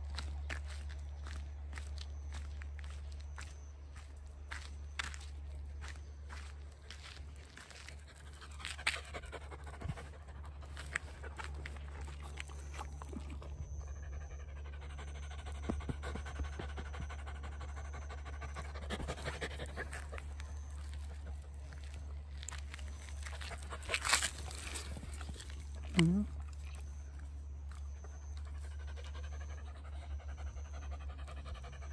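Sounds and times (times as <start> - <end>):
steady low hum: 0.0 - 31.9
dog panting: 7.5 - 21.5, 27.7 - 31.9.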